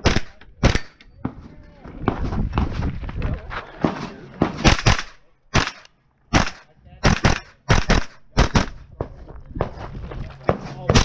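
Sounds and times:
carbine gunshots: 0:00.0 - 0:01.0, 0:04.4 - 0:08.8.

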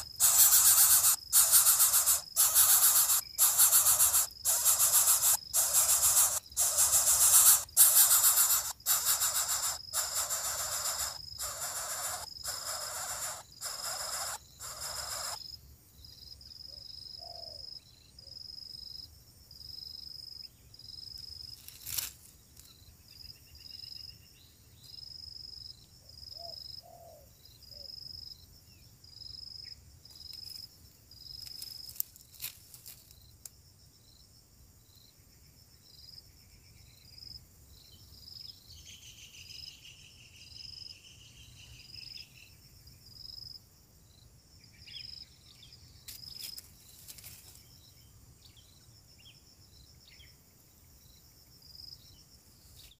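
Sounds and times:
faint bird calls: 0:00.0 - 0:15.4
insect chirping: 0:00.0 - 0:53.0.

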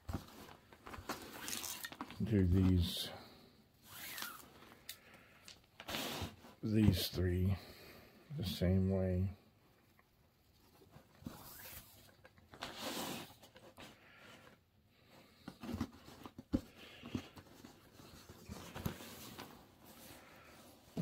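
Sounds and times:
cord rustling and scraping: 0:00.0 - 0:03.0, 0:03.8 - 0:07.0, 0:10.4 - 0:14.6.

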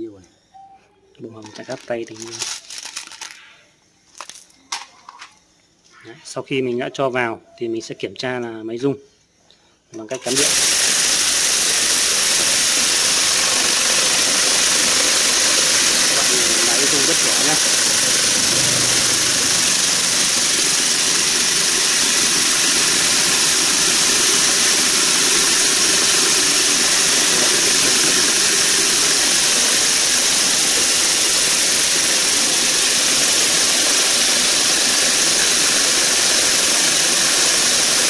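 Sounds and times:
vibratory tumbler hissing: 0:10.3 - 0:38.0.

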